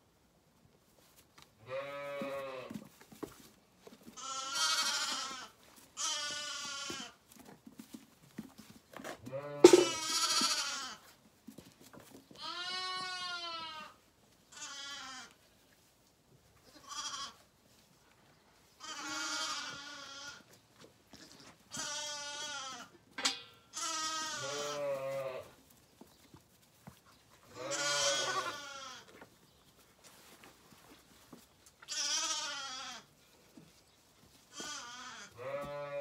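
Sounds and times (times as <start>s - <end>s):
lambs bleating: 1.7s - 2.7s, 4.2s - 7.2s, 9.3s - 11.0s, 12.4s - 15.4s, 16.7s - 17.4s, 18.8s - 20.4s, 21.1s - 22.9s, 23.7s - 25.5s, 27.5s - 29.1s, 31.8s - 33.1s, 34.5s - 36.0s.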